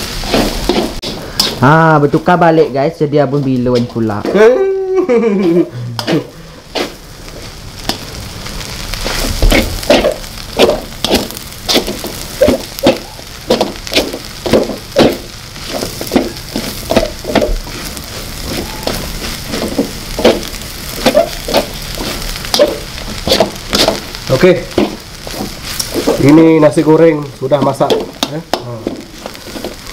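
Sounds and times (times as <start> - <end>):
metal spatula scraping a wok: 0.0 - 1.6, 9.0 - 26.3, 27.6 - 29.9
food sizzling: 0.0 - 29.9.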